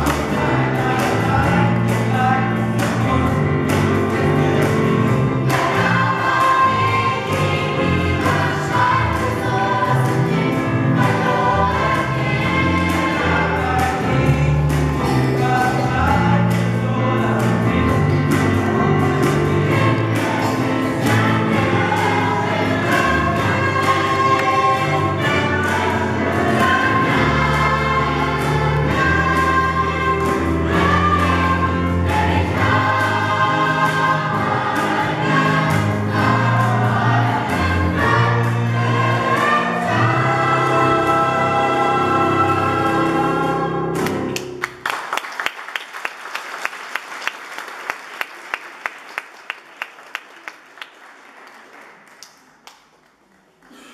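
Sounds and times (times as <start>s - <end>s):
choir singing: 0.0s - 44.6s
audience applause: 44.0s - 53.6s.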